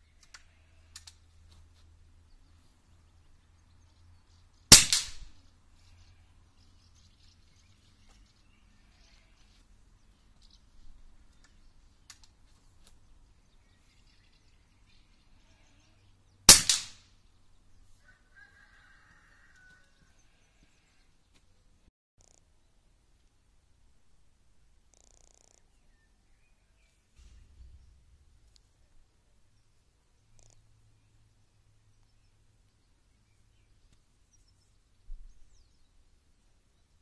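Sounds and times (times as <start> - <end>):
faint clicks: 0.1 - 1.2, 22.2 - 22.5, 24.8 - 25.7, 30.3 - 30.7
air rifle shots: 4.7 - 5.3, 16.5 - 17.1.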